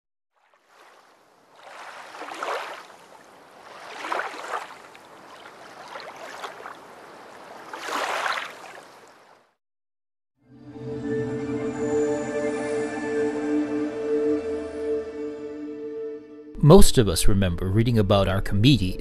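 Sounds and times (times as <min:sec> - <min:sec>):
waves washing in: 0:00.4 - 0:09.3.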